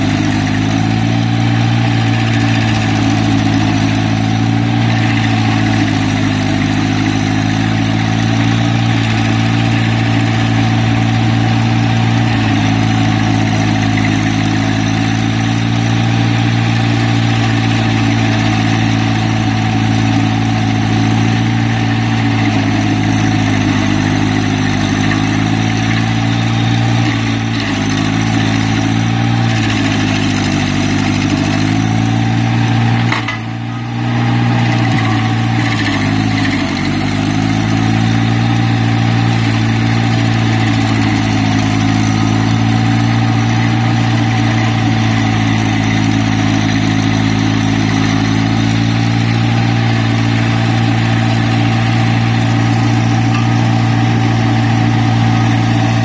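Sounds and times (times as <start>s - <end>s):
cutter wheel grinding stump: 0.0s - 56.0s
engine running hard: 0.0s - 56.0s.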